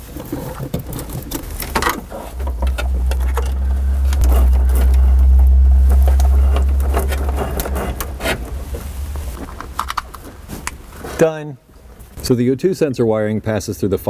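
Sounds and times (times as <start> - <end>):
low rumble: 1.4 - 11.2.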